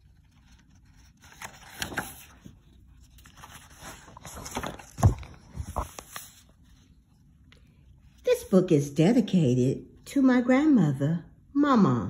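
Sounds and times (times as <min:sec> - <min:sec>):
paper pages rustling: 0:00.0 - 0:07.7.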